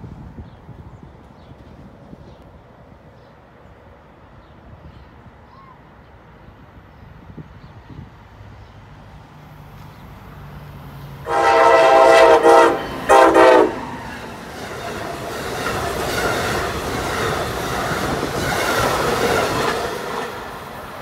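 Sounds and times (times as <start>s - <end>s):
train coaches rumbling and clacking: 0.1s - 5.2s, 8.8s - 21.0s
train horn blasts: 11.2s - 14.1s.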